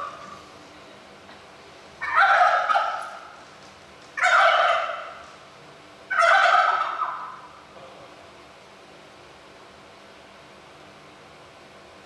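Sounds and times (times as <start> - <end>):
turkeys gobbling: 0.0 - 0.4, 2.0 - 3.4, 4.2 - 5.4, 6.1 - 7.6.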